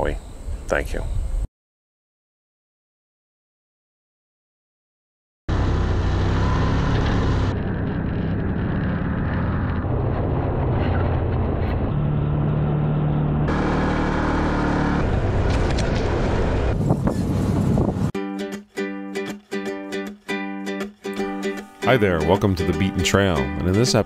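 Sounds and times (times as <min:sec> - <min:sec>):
driving noise: 0:05.5 - 0:18.1
off-road vehicle engine running: 0:05.5 - 0:18.1.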